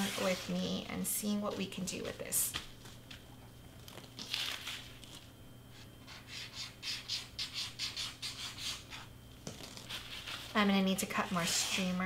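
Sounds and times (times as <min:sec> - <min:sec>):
hands rubbing crepe paper: 0:05.8 - 0:12.0.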